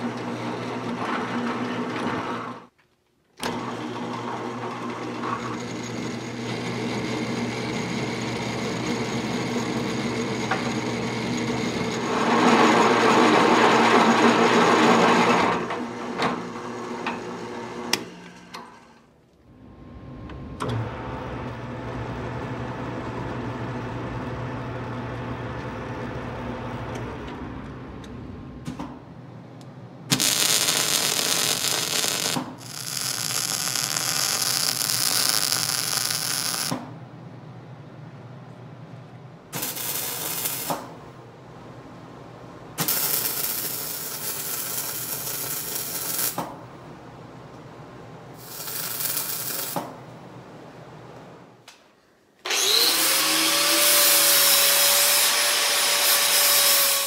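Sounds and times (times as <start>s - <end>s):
welding arc hissing: 30.1s - 36.8s, 39.6s - 41.0s, 42.8s - 46.4s, 48.4s - 49.9s.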